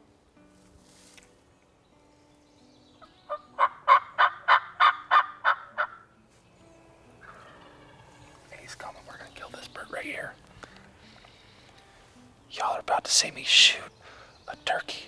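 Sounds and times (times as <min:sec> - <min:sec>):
wild turkey calling: 0:03.0 - 0:06.1, 0:07.2 - 0:11.7.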